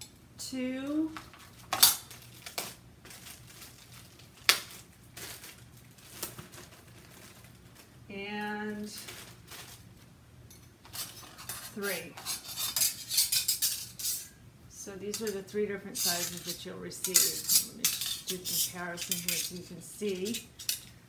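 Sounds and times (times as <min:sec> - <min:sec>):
plastic bag crinkling: 0:01.2 - 0:08.0, 0:08.7 - 0:10.1.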